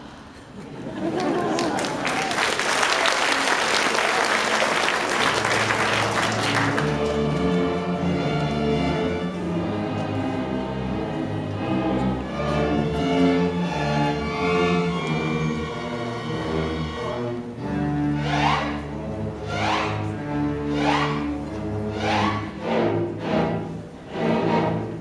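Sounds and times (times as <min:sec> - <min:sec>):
audience applause: 0:00.9 - 0:07.6
string orchestra playing: 0:04.0 - 0:25.0.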